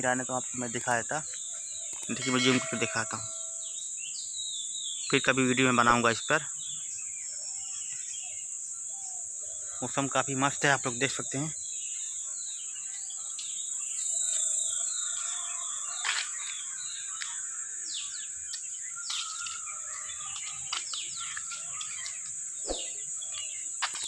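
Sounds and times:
small birds chirping: 0:00.0 - 0:24.0
high-pitched insect drone: 0:01.9 - 0:04.0, 0:12.9 - 0:24.0.

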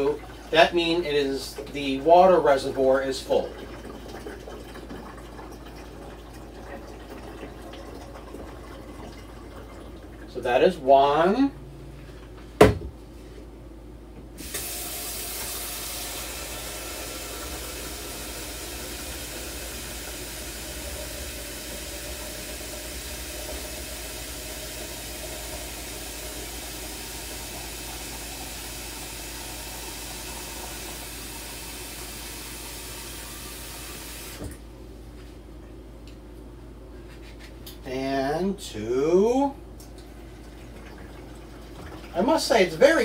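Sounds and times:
water running into plastic pitcher: 0:00.0 - 0:10.5, 0:14.4 - 0:34.6, 0:39.9 - 0:43.0
knock: 0:12.6 - 0:13.0.

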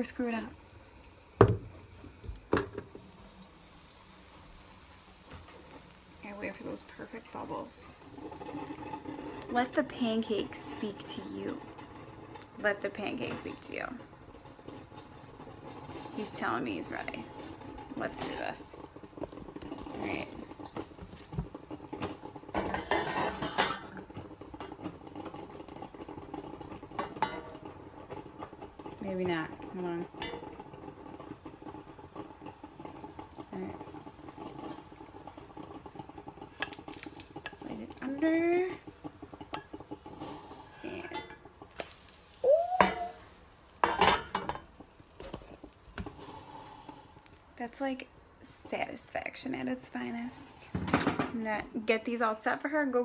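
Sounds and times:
light sizzling: 0:00.0 - 0:53.0
pan and spatula clatter: 0:05.0 - 0:46.4
spatula scraping frying pan: 0:05.2 - 0:47.3
metal spatula scraping frying pan: 0:21.6 - 0:28.9, 0:30.1 - 0:31.4, 0:34.3 - 0:42.1.

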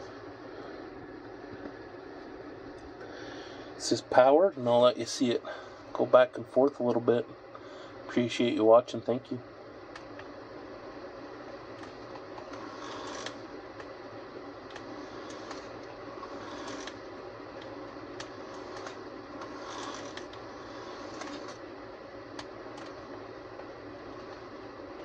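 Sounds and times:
model train motor whirring: 0:12.4 - 0:13.4, 0:14.7 - 0:17.1, 0:18.2 - 0:21.6.

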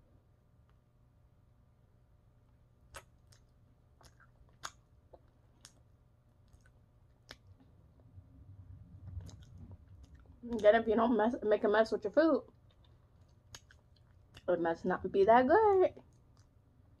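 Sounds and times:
wet mouth clicks and smacks: 0:02.9 - 0:07.6, 0:09.1 - 0:10.7, 0:12.5 - 0:14.5.

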